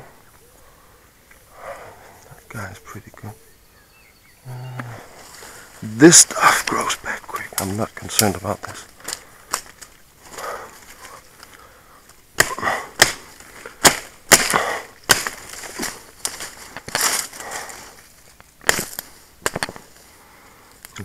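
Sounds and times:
leaves rustling: 0.0 - 21.0
branches cracking and snapping: 4.8 - 21.0.

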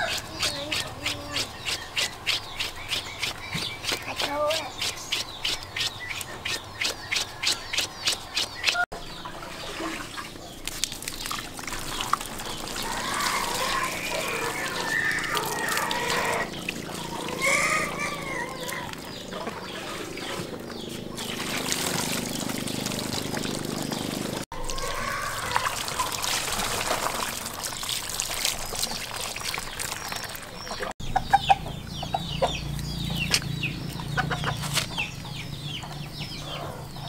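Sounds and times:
water pouring and splashing: 7.5 - 31.0.

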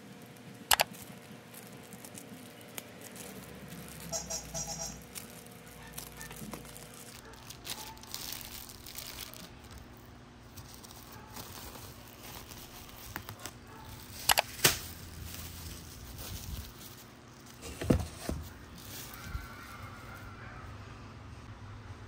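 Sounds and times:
plastic wrapping crinkling and tearing: 0.0 - 20.3
sharp clicks: 0.7 - 0.9, 14.2 - 14.8.

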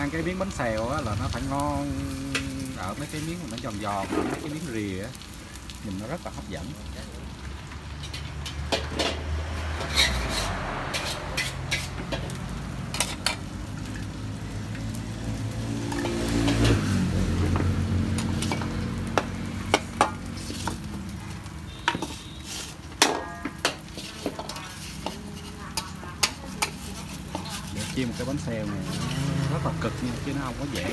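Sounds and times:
pancakes sizzling in pans: 0.0 - 30.9
metal spatula scraping pans: 2.0 - 4.7, 7.9 - 14.1, 15.8 - 20.9, 21.7 - 30.9.

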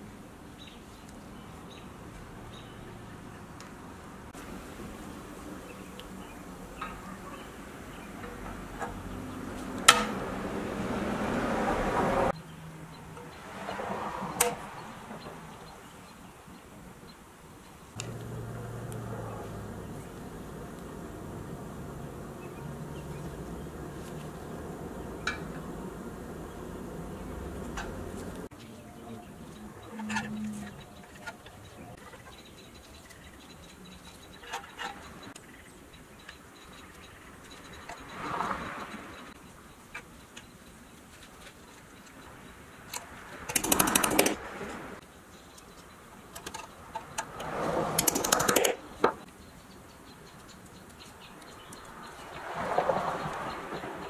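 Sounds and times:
sharp metallic click: 42.9 - 44.4, 46.4 - 49.2
handling and rubbing of metal parts: 43.5 - 44.5, 47.4 - 49.0.

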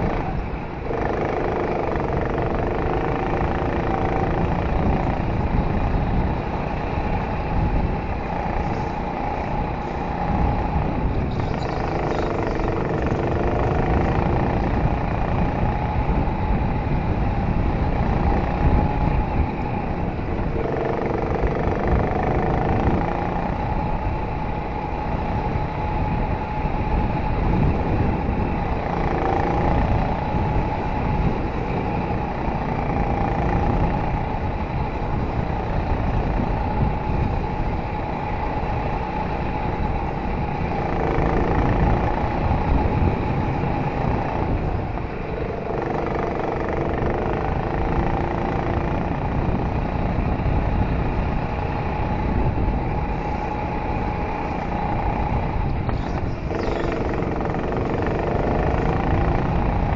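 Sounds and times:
go-kart engine drone: 0.0 - 59.9.

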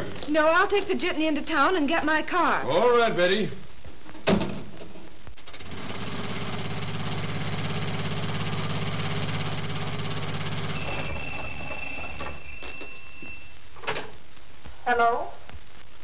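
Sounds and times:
telephone bell ringing: 10.5 - 13.6.

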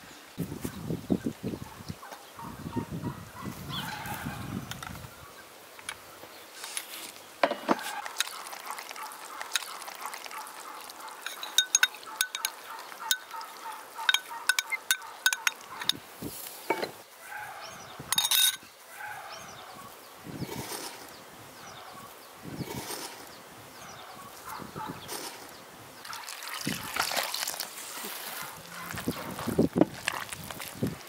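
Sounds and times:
metal spoon scraping glass dish: 11.2 - 13.3, 14.1 - 16.0, 18.1 - 18.6.

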